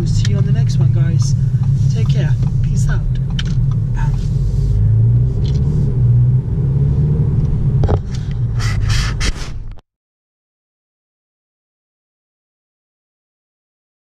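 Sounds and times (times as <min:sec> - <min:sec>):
car engine and road noise: 0:00.0 - 0:09.8.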